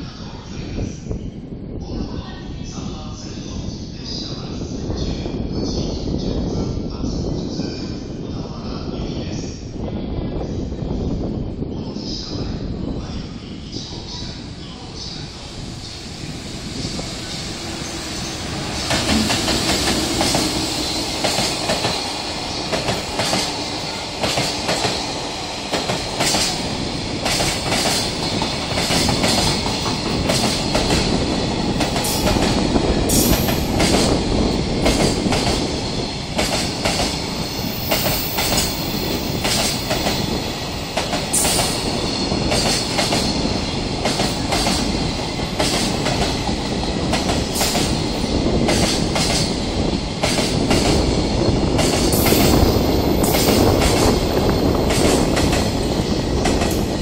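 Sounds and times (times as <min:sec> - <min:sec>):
train wheels rumbling on rails: 0:12.2 - 0:57.0.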